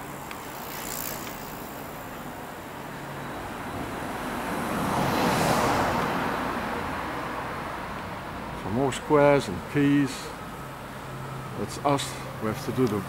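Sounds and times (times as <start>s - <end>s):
car driving past: 3.6s - 7.8s.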